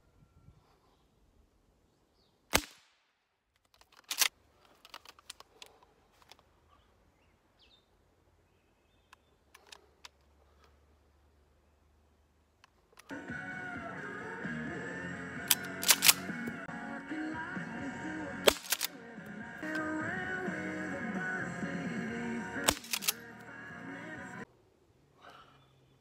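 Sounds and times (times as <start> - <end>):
shotgun shots: 2.5 - 3.2, 15.5 - 16.3, 18.4 - 19.0, 22.6 - 23.2.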